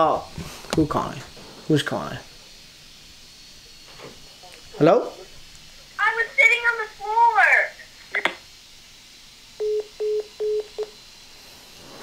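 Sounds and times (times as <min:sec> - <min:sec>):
phone call tone beeps: 0:09.6 - 0:10.9.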